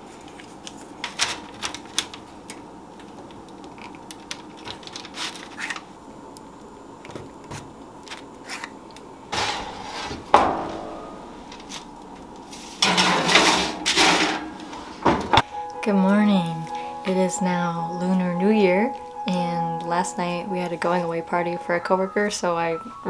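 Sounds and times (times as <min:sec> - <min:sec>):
tray scraping into oven: 0:09.3 - 0:15.0
metal clang ringing: 0:10.3 - 0:11.6.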